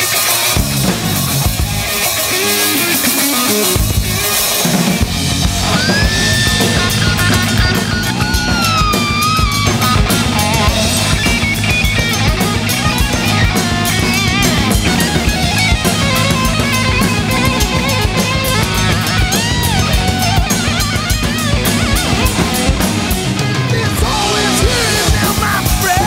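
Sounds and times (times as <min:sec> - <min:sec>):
bass line: 0:00.0 - 0:26.0
electric guitar bending notes: 0:00.0 - 0:26.0
rock drum kit beat: 0:00.0 - 0:26.0.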